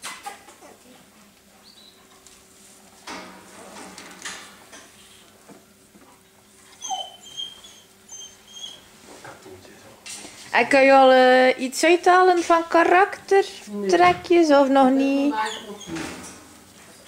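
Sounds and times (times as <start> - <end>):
puppies whimpering: 6.6 - 8.9, 15.3 - 16.0.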